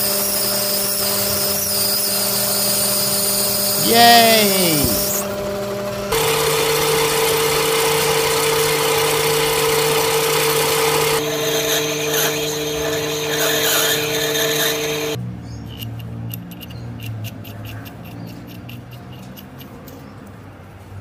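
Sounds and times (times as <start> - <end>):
lathe motor whine: 0.0 - 3.9, 4.8 - 15.2
tool cutting brass: 6.1 - 15.2.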